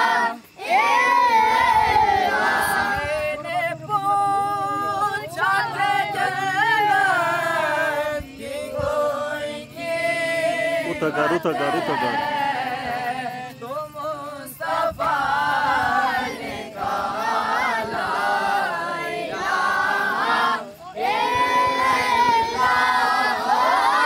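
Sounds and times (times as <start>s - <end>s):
group chanting devotional verses: 0.0s - 24.0s.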